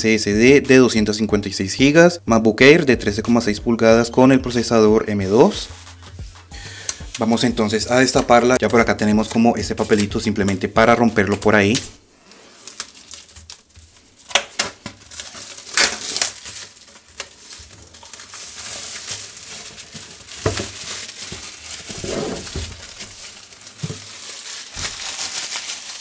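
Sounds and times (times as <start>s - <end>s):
plastic shrink-wrap tearing and crinkling: 9.6s - 26.0s.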